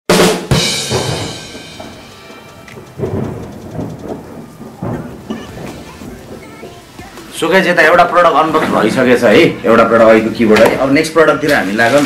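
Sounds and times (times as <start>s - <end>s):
thunder-like crash: 0.6s - 10.9s
soft rhythmic pulsing: 1.4s - 8.2s.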